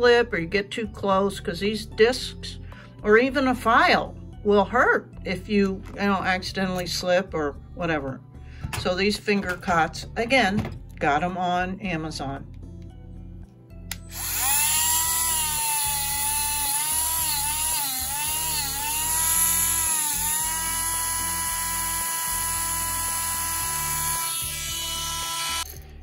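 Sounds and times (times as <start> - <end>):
rotary tool sanding metal: 14.1 - 25.9.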